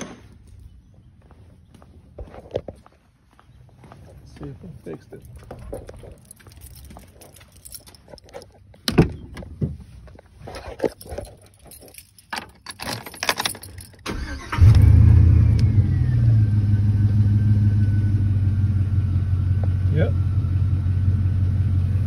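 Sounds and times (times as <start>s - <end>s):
footsteps: 0.0s - 12.3s
keys jangling: 5.2s - 8.9s, 10.8s - 14.1s
engine cranking and starting: 12.8s - 16.2s.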